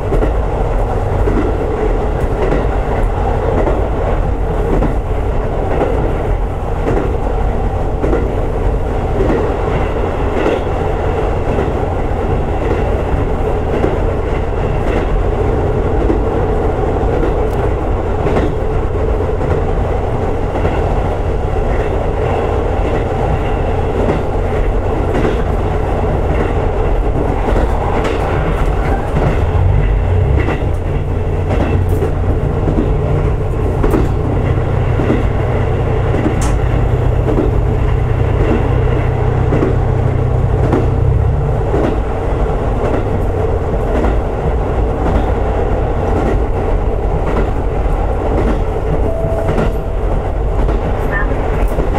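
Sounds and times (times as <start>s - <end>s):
railcar engine and wheels rumbling: 0.0s - 51.9s
wheels clicking over rail joints: 7.9s - 49.0s.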